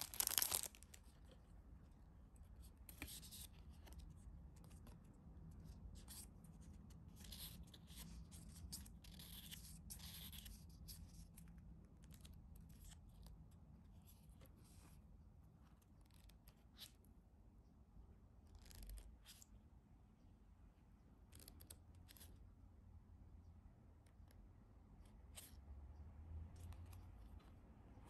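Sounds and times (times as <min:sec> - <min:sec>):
low room hum: 0:00.0 - 0:28.0.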